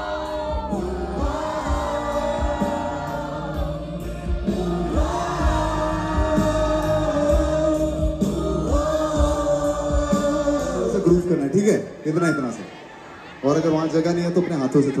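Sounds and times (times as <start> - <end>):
guitars: 0.0 - 10.8
person singing: 0.0 - 11.2
steady drum beat: 0.0 - 11.2.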